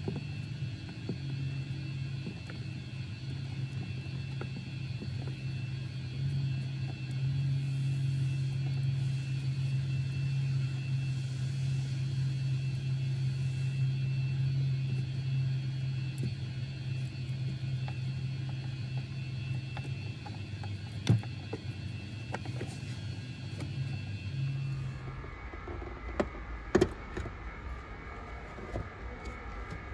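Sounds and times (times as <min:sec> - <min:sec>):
low mechanical hum: 0:00.0 - 0:29.9.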